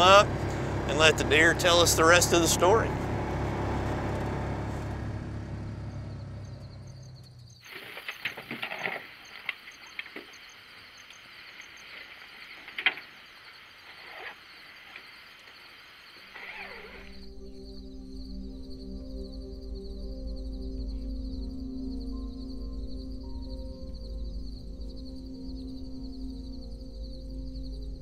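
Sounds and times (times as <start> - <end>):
vehicle engine rumbling: 0.0 - 15.2.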